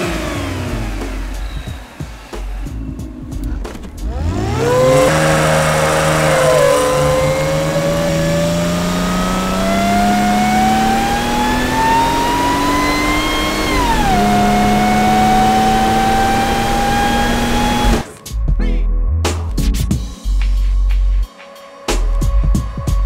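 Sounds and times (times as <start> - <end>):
car engine accelerating hard: 0.0 - 18.0.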